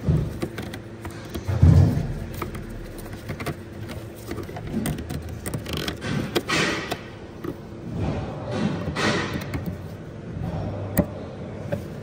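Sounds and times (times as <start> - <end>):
plastic and metal fittings clicking: 2.3 - 7.6.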